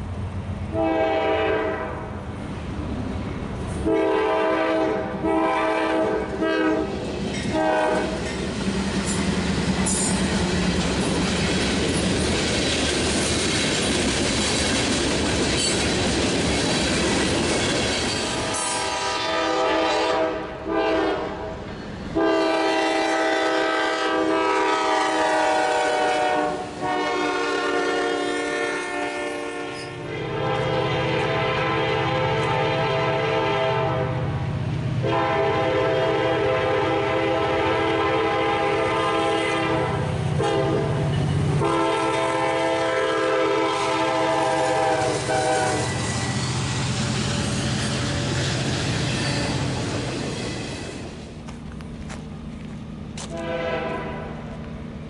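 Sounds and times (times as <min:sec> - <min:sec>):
train horn blasts: 0:00.7 - 0:02.1, 0:03.8 - 0:08.2, 0:18.4 - 0:34.3, 0:35.0 - 0:46.6, 0:53.2 - 0:54.6
wheels clattering on rails: 0:06.9 - 0:18.8.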